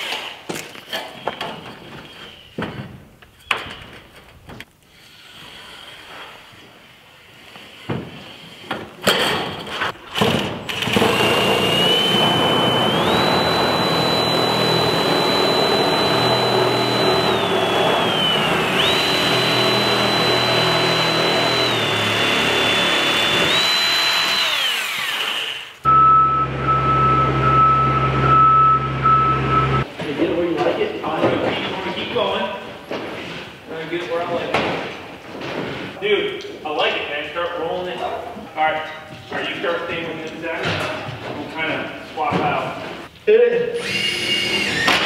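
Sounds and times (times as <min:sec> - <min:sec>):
drill motor whine: 0:10.8 - 0:29.8, 0:43.8 - 0:45.0
low hum: 0:25.9 - 0:29.8
scissor lift warning tone: 0:25.9 - 0:29.9.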